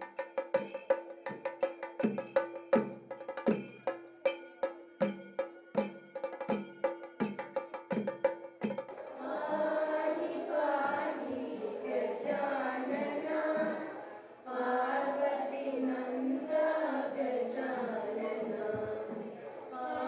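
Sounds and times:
ringing percussion strikes: 0.0s - 10.0s
children singing in unison: 8.9s - 20.0s.

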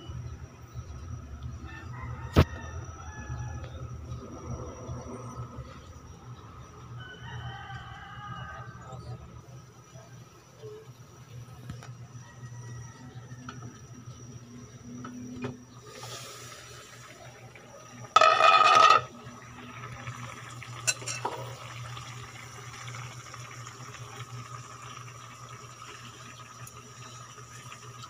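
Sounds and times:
food simmering in a pot: 0.0s - 28.0s
metal lid scraping off pot: 18.2s - 19.1s, 20.9s - 21.4s.

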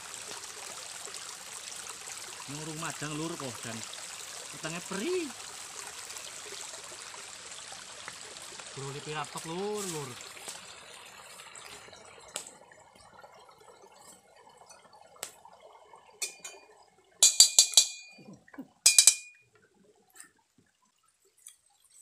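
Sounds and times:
faint liquid pouring: 0.0s - 18.8s, 19.4s - 22.0s
spatula clanking on wok: 17.2s - 18.2s, 18.8s - 19.4s.

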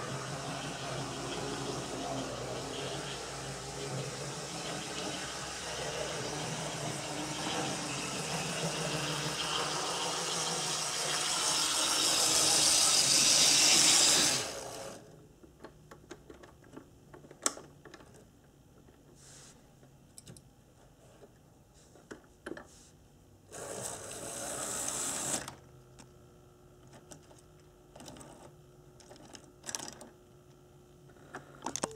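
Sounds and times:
model train motor whirring: 0.0s - 15.0s, 23.5s - 25.5s.

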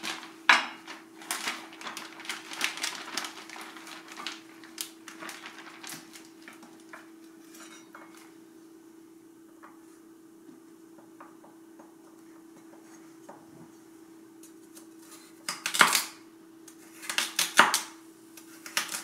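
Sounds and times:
plastic bag crinkling: 0.0s - 7.6s.

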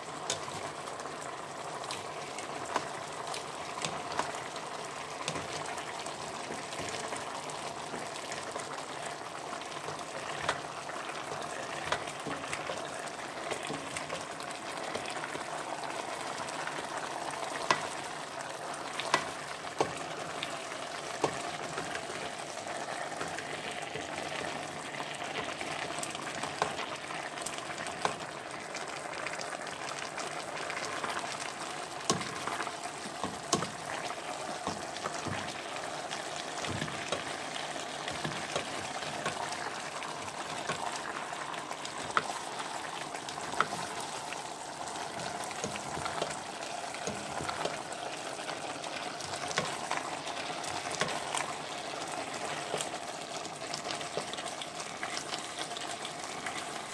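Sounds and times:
stew sizzling in a pot: 0.0s - 56.9s.

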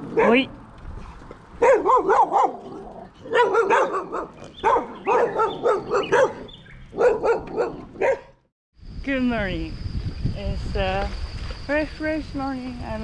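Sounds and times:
dogs barking: 0.0s - 0.5s, 1.6s - 8.4s.

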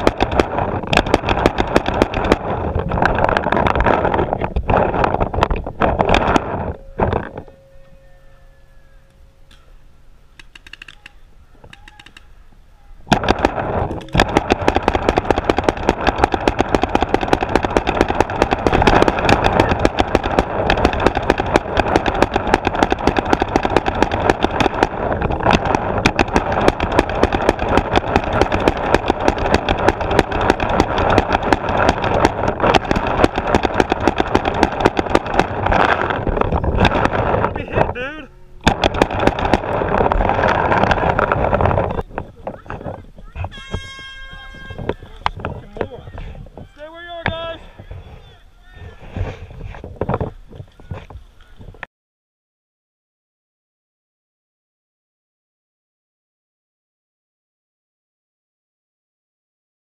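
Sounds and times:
paintball markers firing rapidly: 0.0s - 5.2s, 13.1s - 37.8s, 38.6s - 42.8s.

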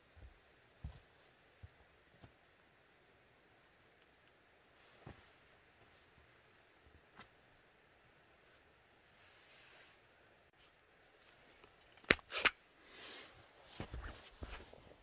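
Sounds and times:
footsteps: 0.0s - 2.4s, 13.6s - 15.0s.

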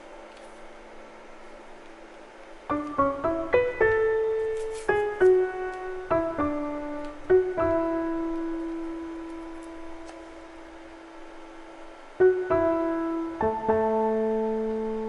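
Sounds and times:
gentle solo piano melody: 2.7s - 11.0s, 12.1s - 15.0s.

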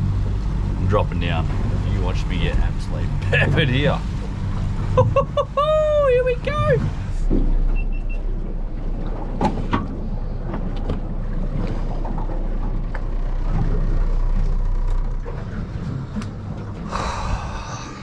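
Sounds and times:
boat engine rumble: 0.0s - 18.0s.

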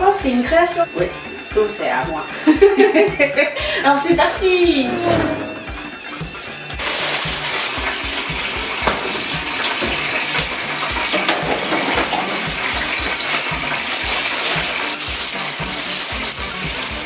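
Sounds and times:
tap running into sink: 7.8s - 17.0s.

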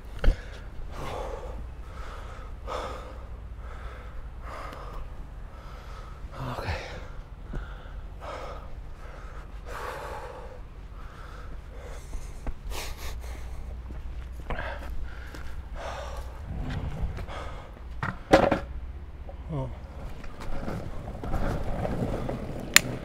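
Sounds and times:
person breathing hard: 0.2s - 17.9s
skateboard wheels rolling on pavement: 13.9s - 18.8s, 19.8s - 23.0s.

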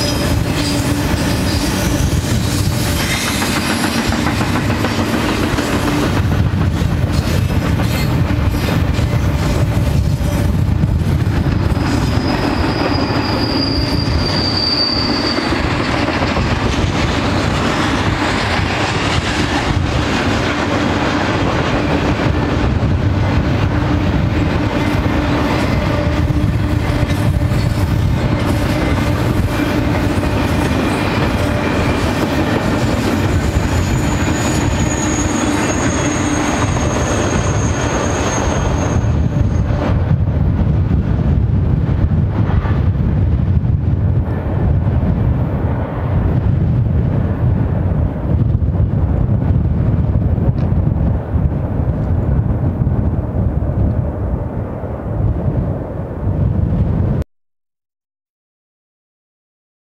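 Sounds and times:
freight train wheels rumbling: 0.0s - 57.2s
thin high squeal: 12.0s - 15.6s, 33.7s - 39.7s.

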